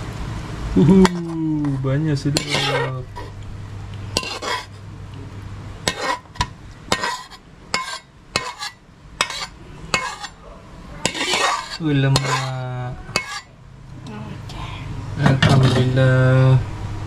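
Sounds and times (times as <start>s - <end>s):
low hum: 0.0s - 17.0s
cutlery clinking on a plate: 5.9s - 10.4s, 11.1s - 12.5s.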